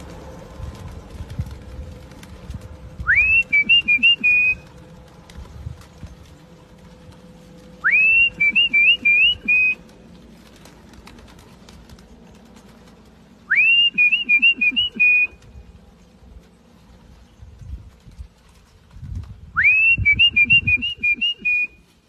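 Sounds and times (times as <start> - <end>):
person whistling a call: 3.0 - 4.6, 7.8 - 9.8, 13.5 - 15.4, 19.6 - 21.8.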